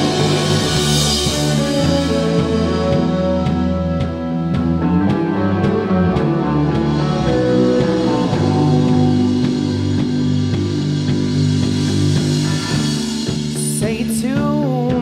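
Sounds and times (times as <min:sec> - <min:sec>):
cymbal crash: 0:00.0 - 0:04.0, 0:06.4 - 0:13.6
drum hits: 0:00.0 - 0:15.0
rock band playing live: 0:00.0 - 0:15.0.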